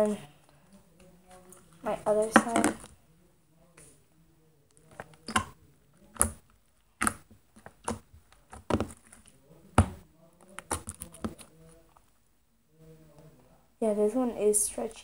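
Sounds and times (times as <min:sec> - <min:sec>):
fingers tapping sticky slime: 0:04.9 - 0:09.0, 0:09.8 - 0:11.5.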